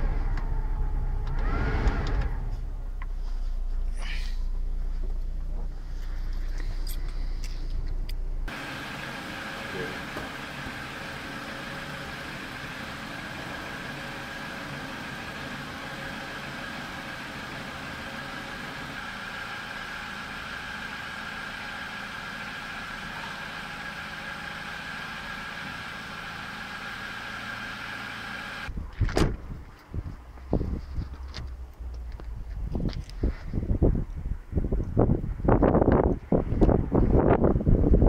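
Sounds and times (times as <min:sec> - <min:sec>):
car engine idling: 0:00.0 - 0:28.7.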